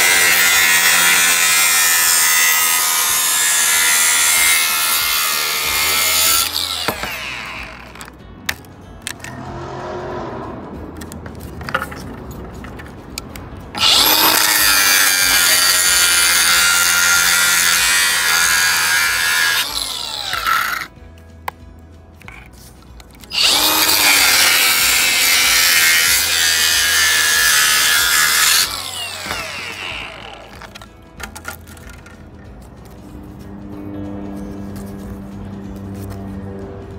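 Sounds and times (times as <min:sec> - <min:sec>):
angle grinder cutting plastic: 0:00.0 - 0:09.3, 0:13.8 - 0:21.0, 0:23.2 - 0:32.2.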